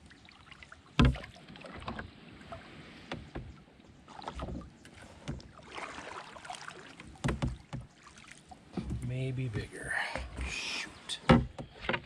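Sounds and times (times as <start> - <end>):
soft swishes of water: 0.0 - 12.0
thump against canoe hull: 1.0 - 2.1, 4.2 - 5.8, 7.0 - 7.9, 8.7 - 9.1, 11.2 - 12.0.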